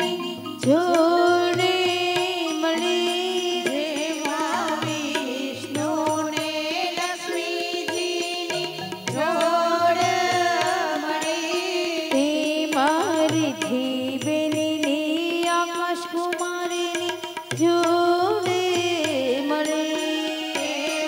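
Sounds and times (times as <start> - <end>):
sustained keyboard notes: 0.0 - 15.1
tabla strokes: 0.0 - 21.0
women singing into microphones: 0.0 - 21.0.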